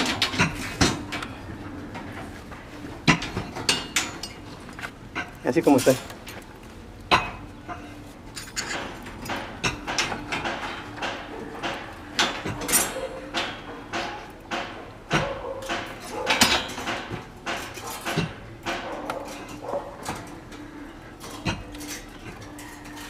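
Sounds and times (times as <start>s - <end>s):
wire twisting on steel rebar: 5.1s - 23.0s.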